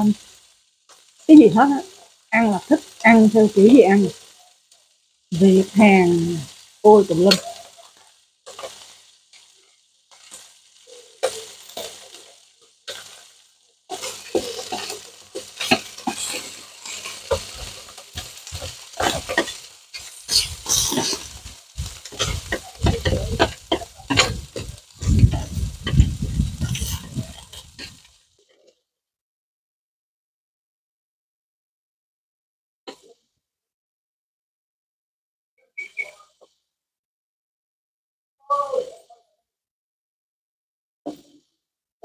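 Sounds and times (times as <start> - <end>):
meat sizzling on a grill plate: 0.0 - 28.6
chopsticks clicking and scraping: 13.9 - 28.1.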